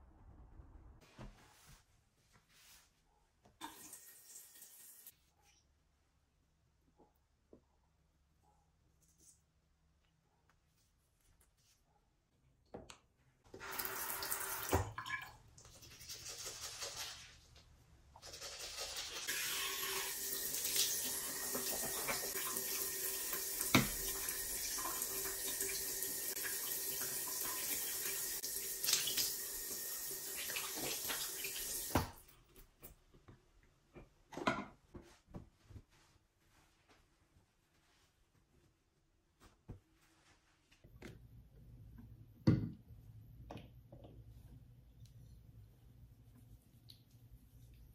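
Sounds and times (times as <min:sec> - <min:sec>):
faint handling sounds: 0:08.6 - 0:12.4, 0:32.3 - 0:41.4
tap running into sink: 0:23.6 - 0:24.2.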